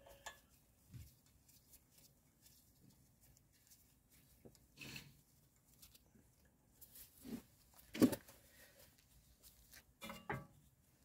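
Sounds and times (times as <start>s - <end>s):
soft rustle: 0.1s - 10.0s
gloved hands rubbing: 0.4s - 6.0s.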